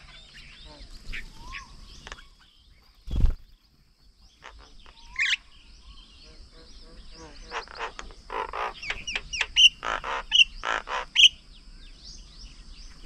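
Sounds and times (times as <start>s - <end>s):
birds chirping and calling: 0.0s - 13.0s.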